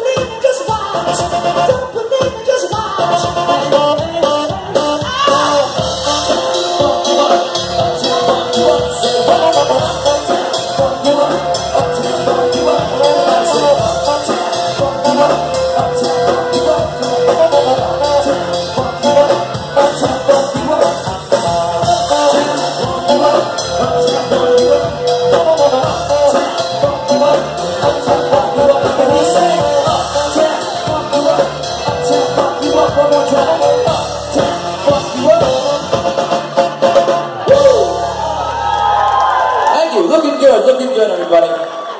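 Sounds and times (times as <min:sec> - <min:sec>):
bass guitar: 0:00.0 - 0:39.7
drums: 0:00.0 - 0:41.9
saxophone: 0:00.8 - 0:39.1.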